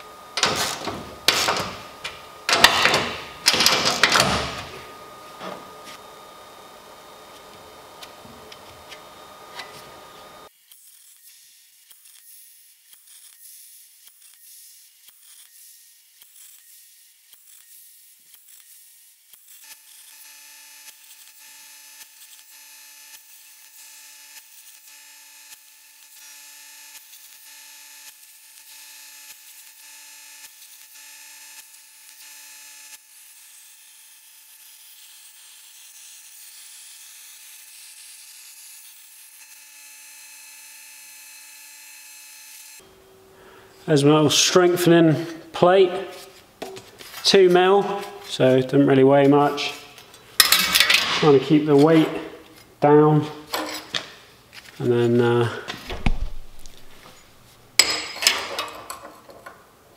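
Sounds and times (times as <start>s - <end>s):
steady whine: 0.0s - 10.5s
plasma cutter hiss with ticks: 10.5s - 39.6s.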